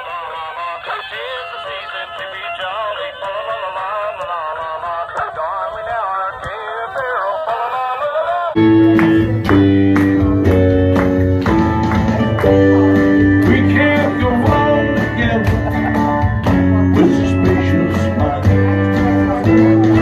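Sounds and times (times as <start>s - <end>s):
country music with plucked guitar: 8.6s - 20.0s.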